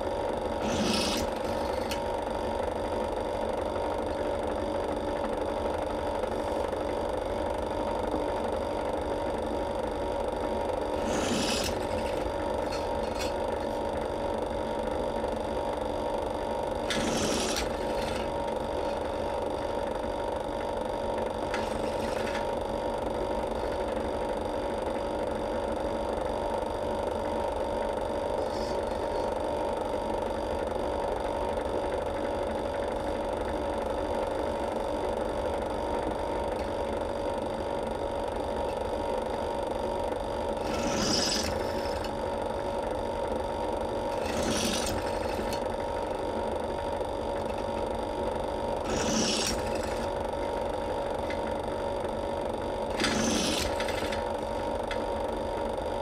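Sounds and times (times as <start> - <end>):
drill press motor hum: 0.0 - 56.0
drill bit scraping metal: 0.4 - 2.5, 10.7 - 14.2, 16.8 - 19.8, 21.3 - 22.9, 40.6 - 42.6, 43.9 - 46.3, 48.8 - 51.6, 52.8 - 55.0.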